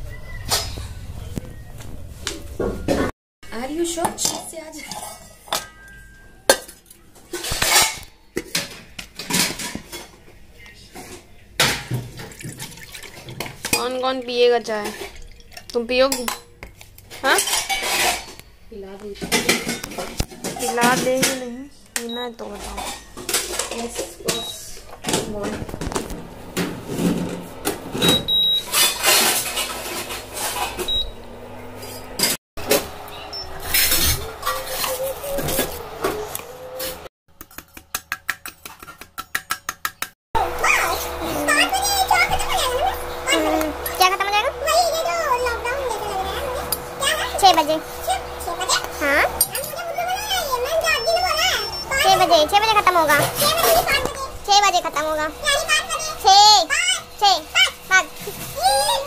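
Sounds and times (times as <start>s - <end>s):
kitchen handling clicks and knocks: 4.0s - 10.2s, 19.1s - 21.5s
cooktop touch panel beeps: 24.3s - 24.7s, 28.0s - 28.8s, 30.8s - 31.2s, 50.6s - 52.5s.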